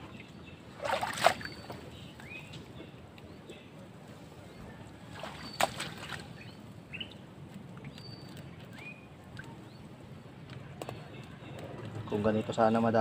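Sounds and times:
water and wind at shoreline: 0.0 - 10.3.

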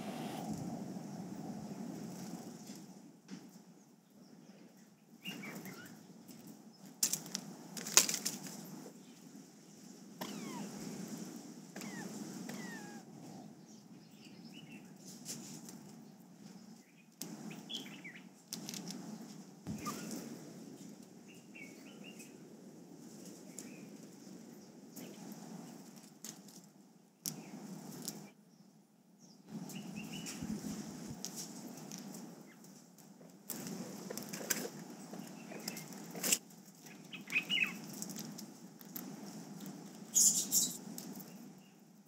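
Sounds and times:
scratching in dry leaves: 7.0 - 9.3, 17.3 - 21.0, 33.5 - 41.5.

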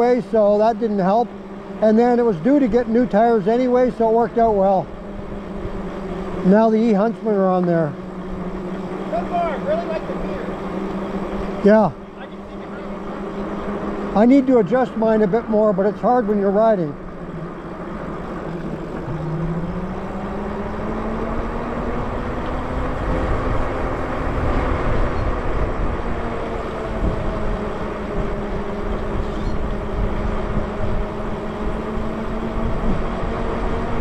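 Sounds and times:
electric bike motor whining: 0.0 - 34.0
wind rumble on microphone: 18.8 - 34.0.

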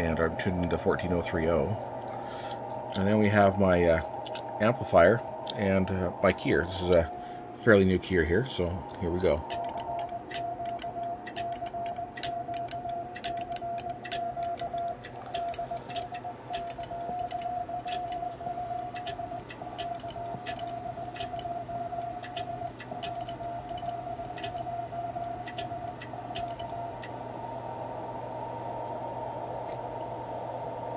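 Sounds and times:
receiver hiss: 0.0 - 30.9
steady low hum: 0.0 - 30.9
keying clicks: 8.6 - 27.2
morse code beeps: 8.8 - 27.1.

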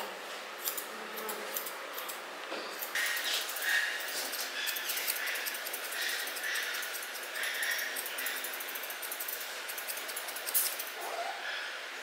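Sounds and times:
grooming shears snipping: 2.8 - 10.9.

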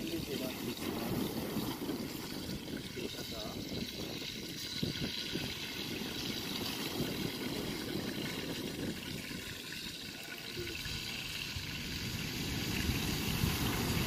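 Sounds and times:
sea surf rushing: 0.0 - 2.6, 11.3 - 14.0.

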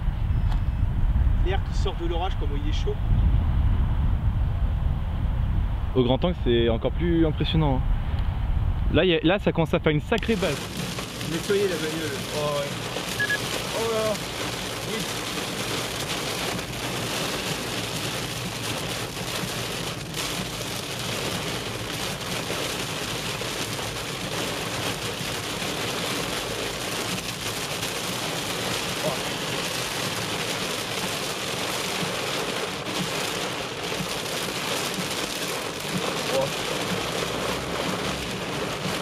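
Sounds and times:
heavy rain on car roof: 10.1 - 39.0.

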